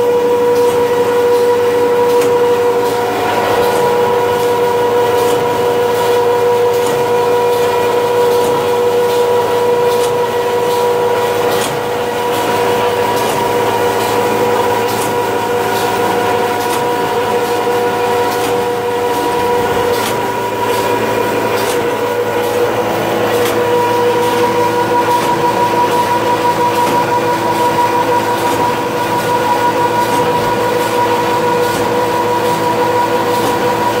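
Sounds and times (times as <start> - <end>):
machine droning with whine: 0.0 - 34.0.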